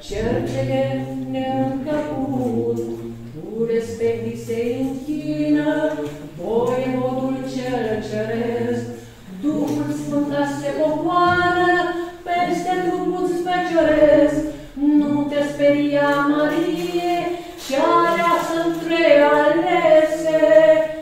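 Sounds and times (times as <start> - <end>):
voices singing a hymn: 0.0 - 21.0.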